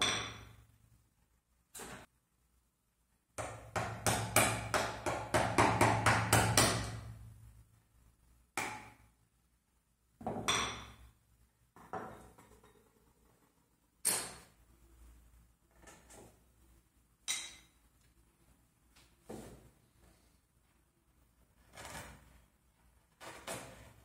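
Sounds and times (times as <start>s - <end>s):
mallet striking wood chisel: 0.0s - 0.6s, 3.4s - 7.1s, 10.3s - 11.0s.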